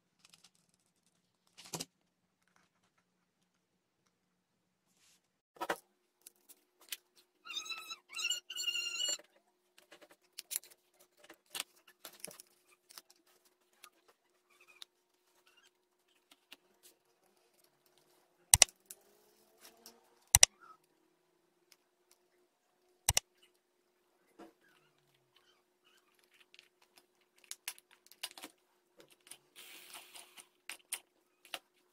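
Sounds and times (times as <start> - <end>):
sharp clicks: 18.5 - 18.7.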